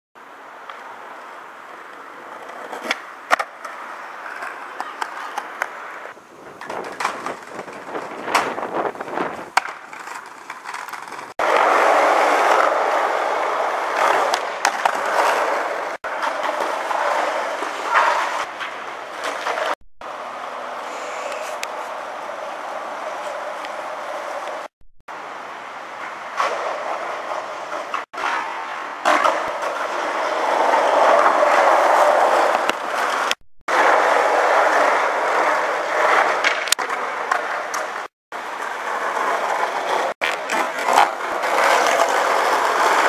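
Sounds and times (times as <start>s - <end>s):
skateboards rolling on concrete: 0.2s - 43.0s
skateboard wooden clacks: 1.9s - 5.8s, 6.5s - 12.8s, 13.9s - 19.8s, 26.0s - 30.0s, 30.7s - 43.0s.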